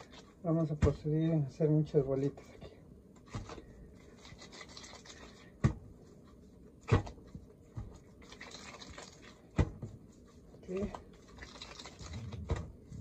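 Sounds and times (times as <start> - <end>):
dough thudding on wooden board: 0.7 - 1.2, 5.6 - 5.9, 6.8 - 8.0, 9.5 - 10.0
hands rubbing dough: 2.0 - 13.0.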